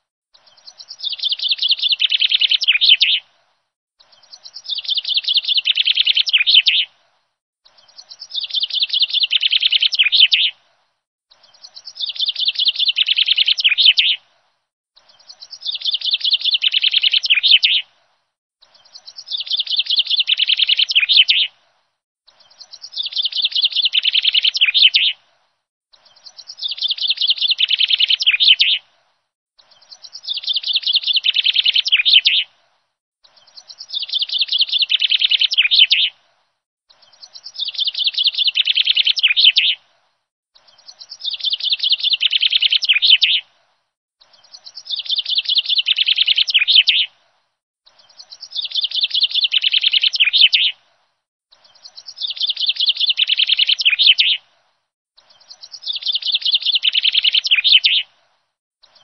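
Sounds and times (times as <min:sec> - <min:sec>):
bird chirping trill: 0:00.4 - 0:03.2, 0:04.0 - 0:06.9, 0:07.7 - 0:10.5, 0:11.3 - 0:14.2, 0:15.0 - 0:17.9, 0:18.6 - 0:21.5, 0:22.3 - 0:25.2, 0:25.9 - 0:28.8, 0:29.6 - 0:32.5, 0:33.2 - 0:36.1, 0:36.9 - 0:39.8, 0:40.6 - 0:43.4, 0:44.2 - 0:47.1, 0:47.9 - 0:50.8, 0:51.5 - 0:54.4, 0:55.2 - 0:58.0.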